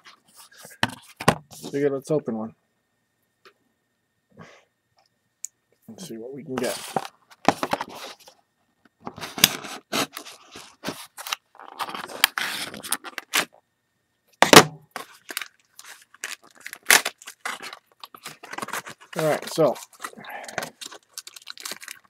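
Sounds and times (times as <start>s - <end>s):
plastic blister pack crackling: 15.0s - 22.0s.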